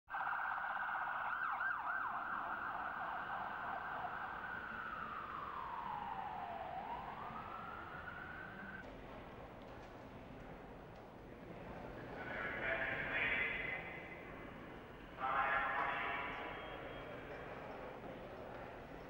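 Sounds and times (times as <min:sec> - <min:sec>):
emergency vehicle siren: 0:00.1 - 0:08.8.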